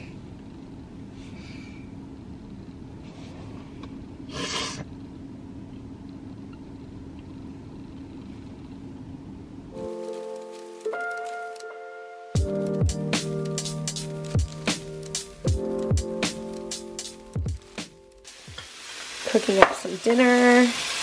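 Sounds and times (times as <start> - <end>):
background music: 9.8 - 18.5.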